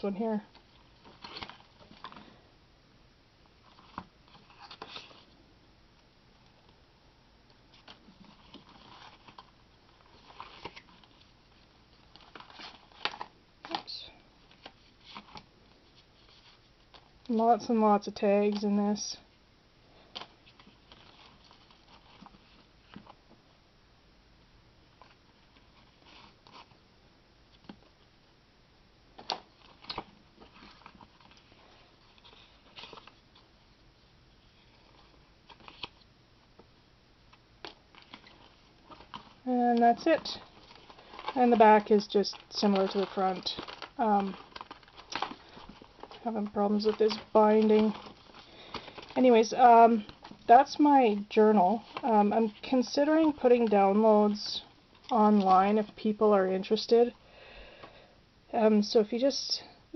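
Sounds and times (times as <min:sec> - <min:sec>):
pages rustling and clicking: 0:00.5 - 0:02.4, 0:07.7 - 0:11.4, 0:12.0 - 0:17.2, 0:20.1 - 0:23.2, 0:29.2 - 0:33.5, 0:34.6 - 0:36.0, 0:37.6 - 0:56.0.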